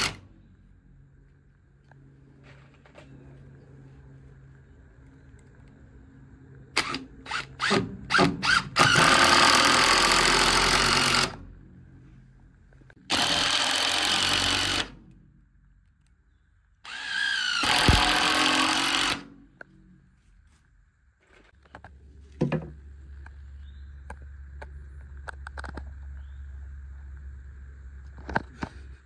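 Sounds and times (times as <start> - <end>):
cordless drill driving screws: 6.8 - 11.4, 13.1 - 15.0, 16.8 - 19.3.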